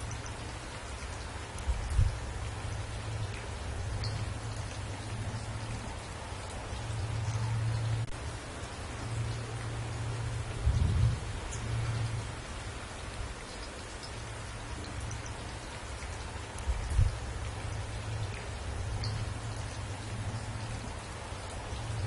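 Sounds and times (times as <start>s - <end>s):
rain falling on trees: 0.0s - 22.0s.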